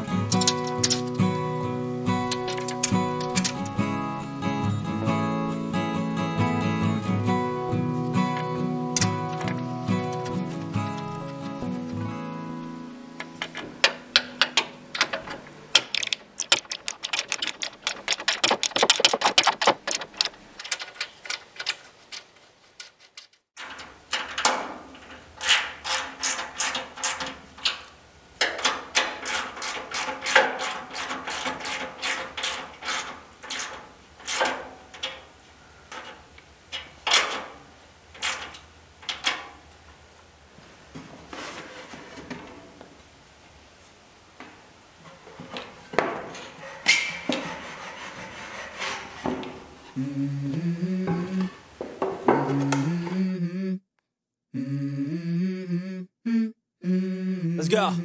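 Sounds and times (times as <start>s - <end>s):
tool clatters: 0.2s - 1.2s, 2.2s - 3.8s, 13.3s - 27.8s.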